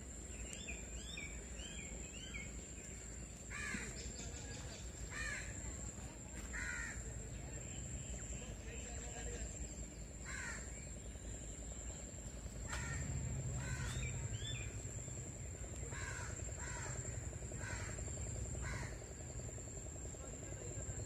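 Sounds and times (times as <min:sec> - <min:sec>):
crows cawing: 0:03.5 - 0:04.0, 0:05.1 - 0:05.6, 0:06.5 - 0:07.1, 0:10.2 - 0:10.8, 0:12.6 - 0:14.3, 0:15.9 - 0:19.1.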